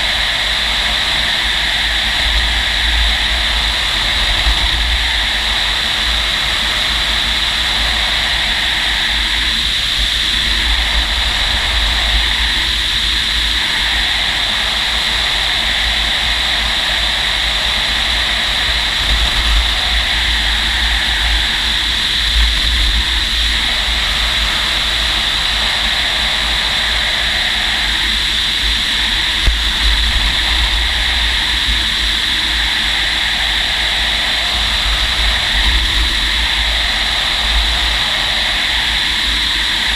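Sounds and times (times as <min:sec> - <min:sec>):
airflow rushing: 0:00.0 - 0:39.9
wind buffeting microphone: 0:00.0 - 0:39.9.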